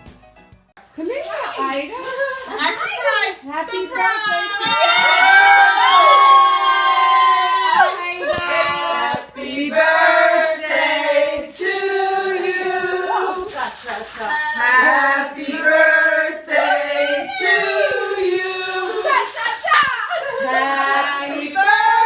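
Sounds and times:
group singing: 4.7s - 22.0s.

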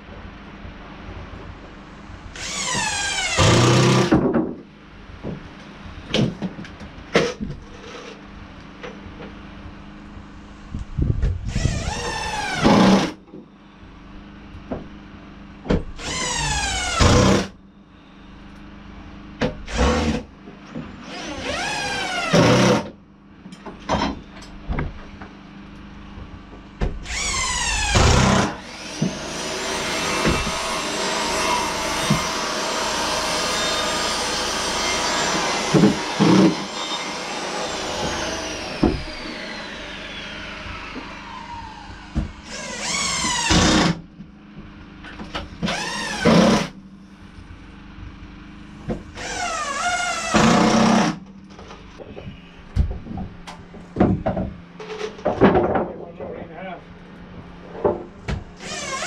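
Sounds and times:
power drill driving screws: 2.4s - 4.1s, 11.5s - 13.2s, 16.0s - 17.5s, 19.7s - 20.2s, 21.0s - 22.9s, 27.0s - 44.0s, 45.6s - 46.7s, 49.1s - 51.2s, 58.6s - 59.0s
clicks and knocks of handling boards: 51.6s - 56.4s.

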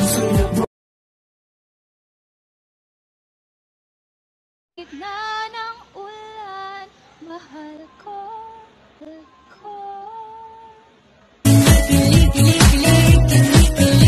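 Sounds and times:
pop music with beat: 0.0s - 0.7s, 11.5s - 14.0s
woman singing unaccompanied: 4.8s - 11.0s.

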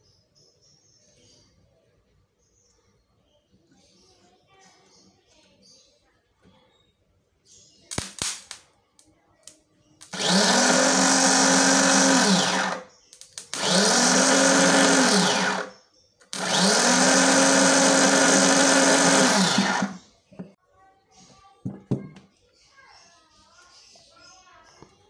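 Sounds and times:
starter motor whining: 10.0s - 12.9s, 13.5s - 15.7s, 16.3s - 20.6s.

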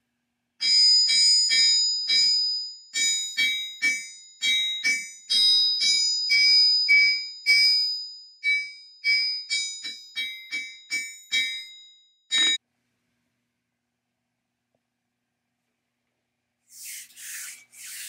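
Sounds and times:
sledgehammer striking ringing anvil: 9.6s - 12.6s.

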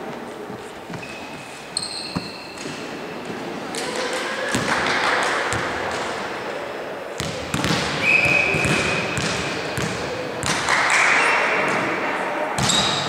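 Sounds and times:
players calling: 3.8s - 13.0s.

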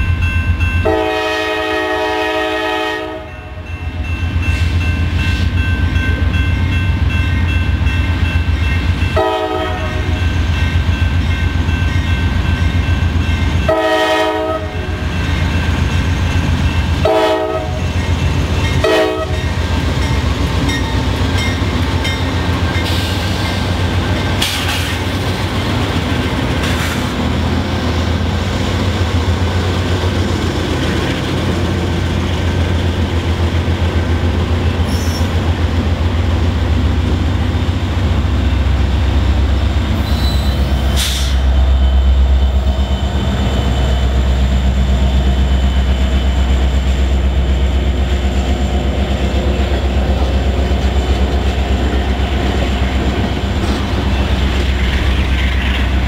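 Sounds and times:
diesel locomotive engine drone: 0.0s - 56.0s
wheels rumbling on rail: 0.0s - 56.0s
wheel clanks and squeals: 40.0s - 42.0s.

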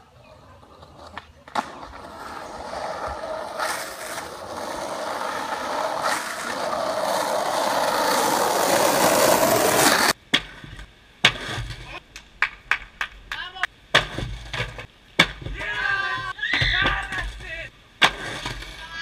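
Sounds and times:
skateboard wheels rolling on asphalt: 0.0s - 13.2s, 14.0s - 15.0s, 18.0s - 19.0s.

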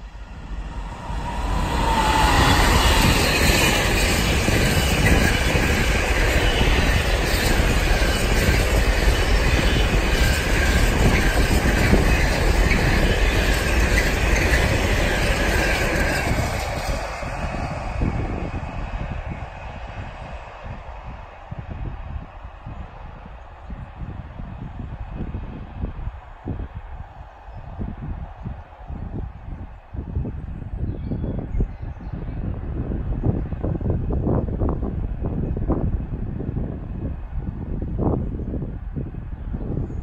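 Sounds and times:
high wheel squeal: 0.0s - 20.0s
locomotive whine: 0.0s - 21.2s.

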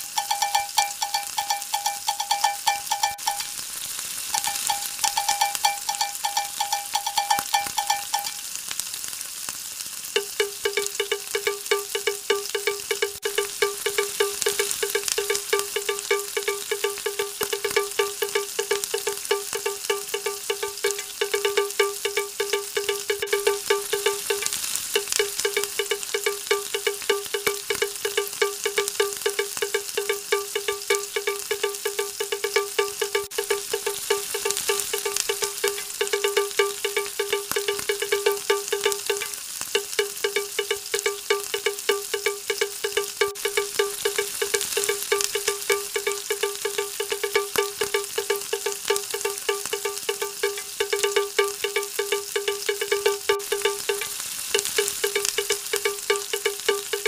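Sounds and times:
chime-like background music: 0.0s - 3.5s
onions sizzling in oil: 0.0s - 57.0s.

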